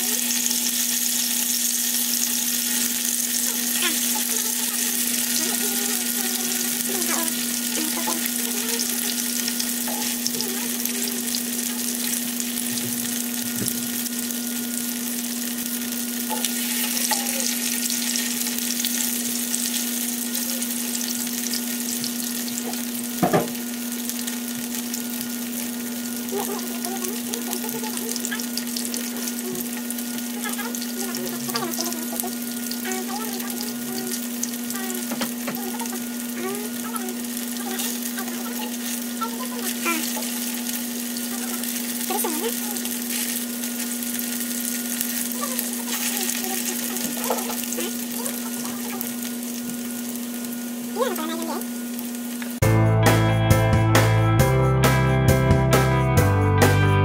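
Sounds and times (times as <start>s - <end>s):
sausages sizzling in hot oil: 0.0s - 52.6s.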